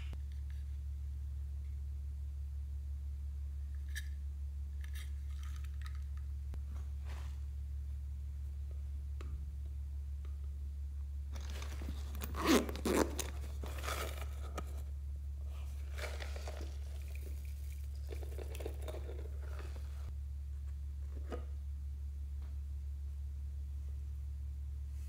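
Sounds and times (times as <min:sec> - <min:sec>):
steady low hum: 0:00.0 - 0:25.0
plastic rustling and crinkling: 0:11.3 - 0:14.9, 0:15.5 - 0:20.1.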